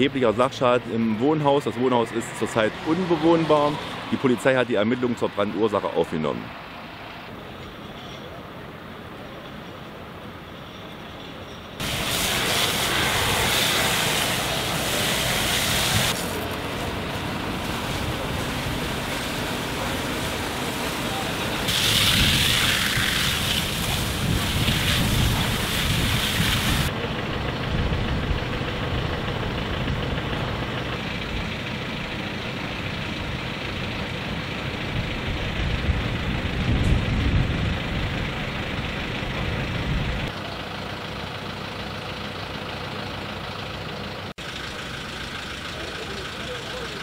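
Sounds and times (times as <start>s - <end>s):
fire engine idling: 6.5s - 47.0s
fire hose jet hissing: 11.8s - 26.9s.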